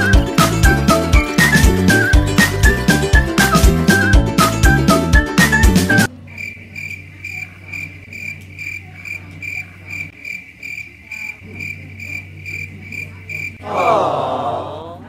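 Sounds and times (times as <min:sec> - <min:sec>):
cricket chirping: 0:06.2 - 0:13.6.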